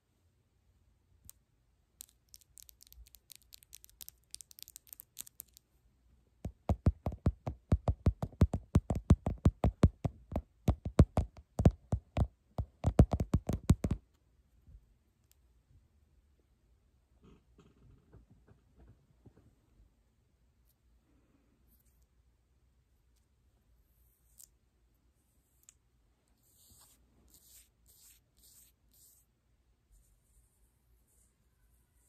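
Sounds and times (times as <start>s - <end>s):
long nails tapping and clicking: 2.0s - 5.7s, 6.4s - 14.1s.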